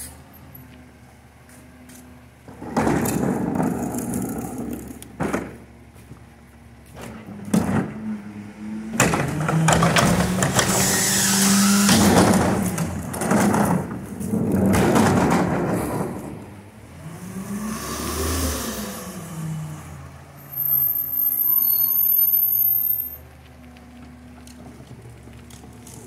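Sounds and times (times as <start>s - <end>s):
plastic cart rolling over asphalt: 2.2s - 8.2s, 9.0s - 16.7s, 20.5s - 26.0s
cart knocking: 2.5s - 5.6s, 11.9s - 16.4s
truck engine speeding up: 7.2s - 25.4s.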